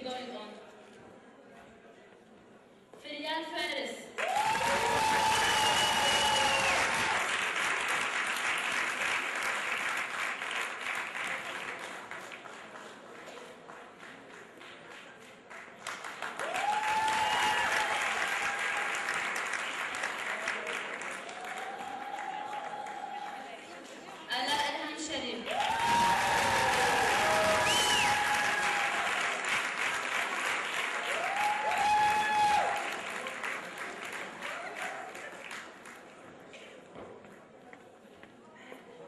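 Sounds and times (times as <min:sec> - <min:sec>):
audience applauding: 0:04.2 - 0:23.8, 0:25.5 - 0:36.1.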